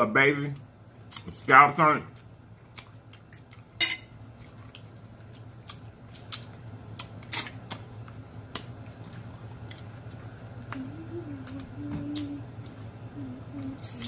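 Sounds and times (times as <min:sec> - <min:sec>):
steady low hum: 0:00.0 - 0:14.0
crab shell cracking: 0:04.5 - 0:10.8.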